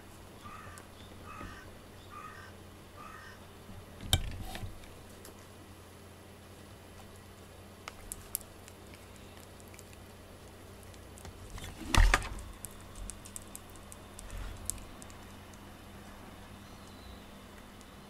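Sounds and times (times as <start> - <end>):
thump and rustle: 11.6 - 12.4.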